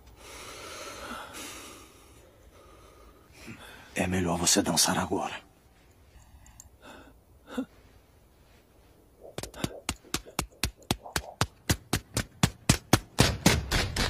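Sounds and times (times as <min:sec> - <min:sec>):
faint breaths: 0:00.0 - 0:04.1, 0:05.5 - 0:10.4.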